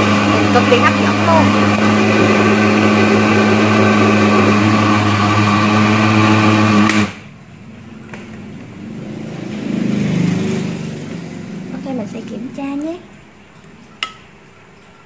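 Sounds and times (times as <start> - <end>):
blender running: 0.0 - 7.3.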